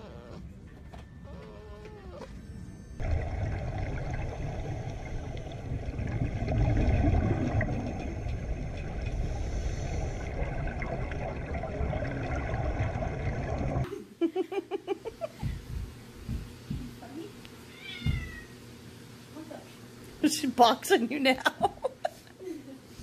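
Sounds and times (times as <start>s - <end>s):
underwater rumble with bubbling: 3.0s - 13.9s.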